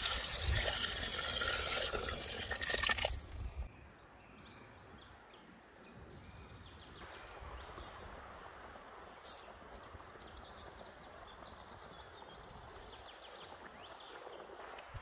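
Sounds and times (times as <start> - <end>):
liquid pouring into a pot: 0.0 - 3.3
outdoor ambience: 0.0 - 15.0.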